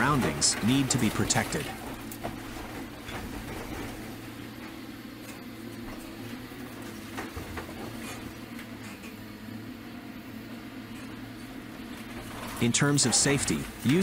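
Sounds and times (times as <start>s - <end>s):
breaking and falling debris: 0.0s - 4.7s
excavator diesel engine: 0.0s - 14.0s.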